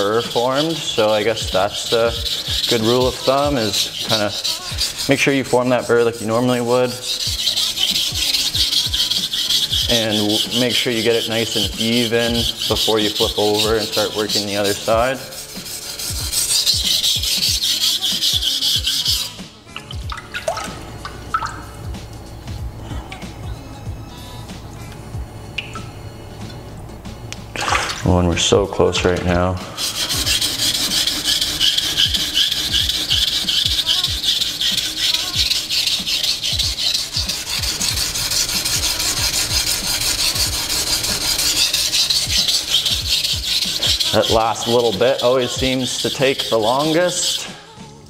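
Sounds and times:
knife blade on whetstone: 0:00.0 - 0:19.6, 0:29.6 - 0:47.6.

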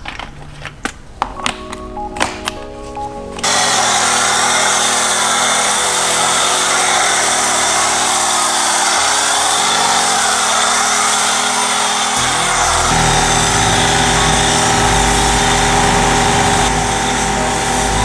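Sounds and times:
car wash equipment hissing: 0:03.4 - 0:18.0
deep low rumble: 0:12.2 - 0:17.0.

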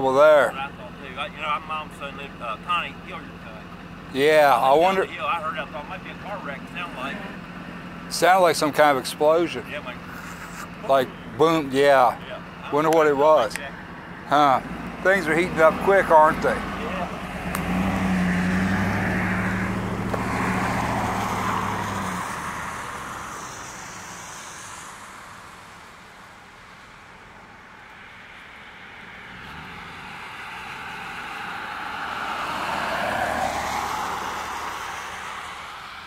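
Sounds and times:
engine hum: 0:00.0 - 0:36.0
tyres hissing on wet road: 0:09.8 - 0:11.0, 0:15.2 - 0:26.9, 0:29.4 - 0:36.0.

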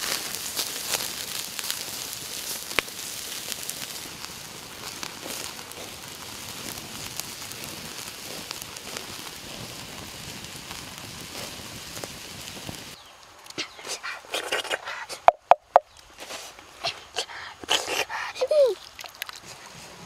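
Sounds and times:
food sizzling on hot stone: 0:00.0 - 0:18.9
fire crackling: 0:00.0 - 0:20.0.

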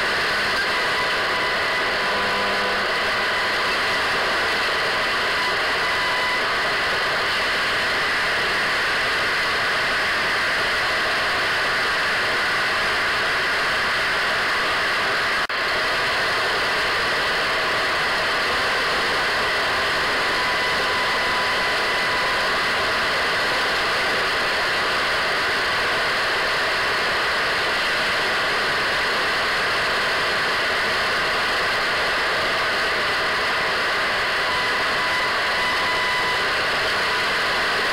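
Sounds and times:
radio static hiss: 0:00.0 - 0:09.3.

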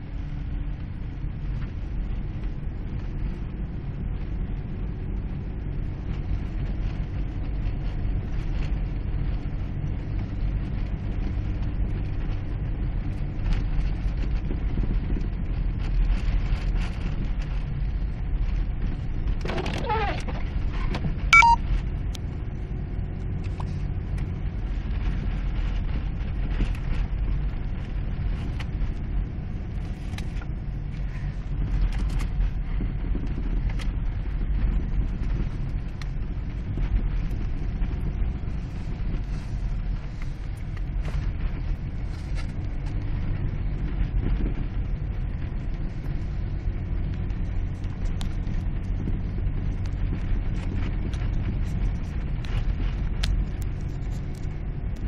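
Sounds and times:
vehicle driving through snow: 0:00.0 - 0:55.0
windshield wiper squeak: 0:19.6 - 0:20.2.

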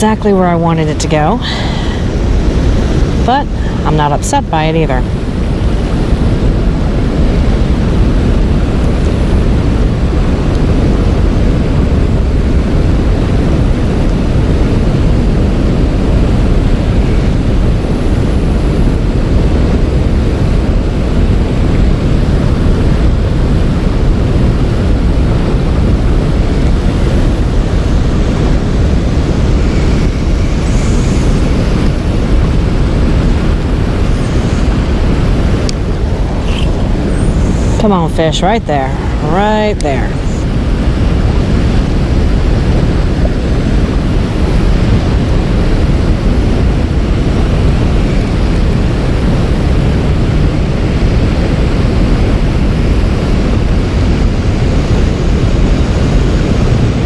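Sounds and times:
wind buffeting microphone: 0:00.0 - 0:57.0
river current rushing: 0:25.2 - 0:57.0.

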